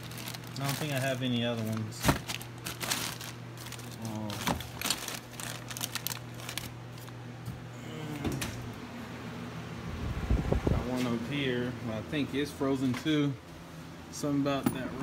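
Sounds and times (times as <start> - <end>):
plastic bags crinkling: 0.0 - 7.2
steady low hum: 0.0 - 15.0.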